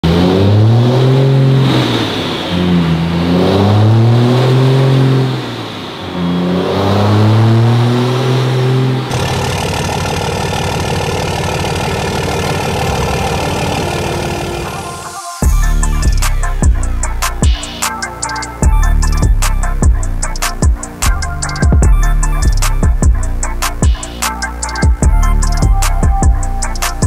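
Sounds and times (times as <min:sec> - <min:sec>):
truck engine revving: 0:00.0 - 0:27.0.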